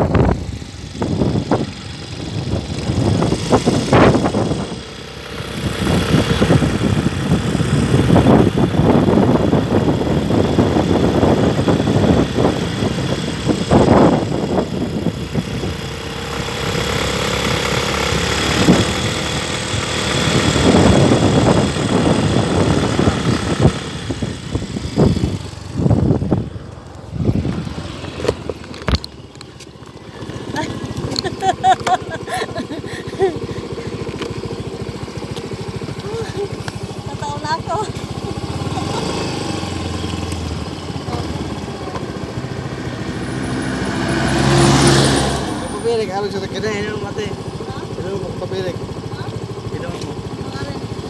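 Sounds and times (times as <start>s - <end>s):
wind buffeting microphone: 0.0s - 4.9s, 5.5s - 16.0s, 18.5s - 29.1s
motorcycle engine running: 0.0s - 51.0s.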